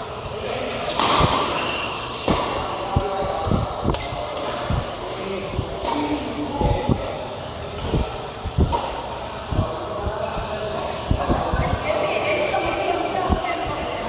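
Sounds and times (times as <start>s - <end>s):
racket hitting shuttlecock: 0.9s - 2.7s, 5.8s - 6.3s, 7.7s - 9.1s.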